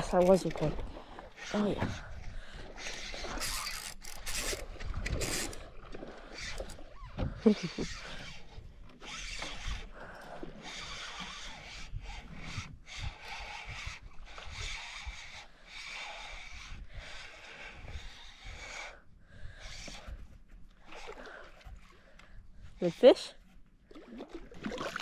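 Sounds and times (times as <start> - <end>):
fishing rod handling noise: 1.4 - 18.9
fishing reel being cranked: 2.7 - 20.2.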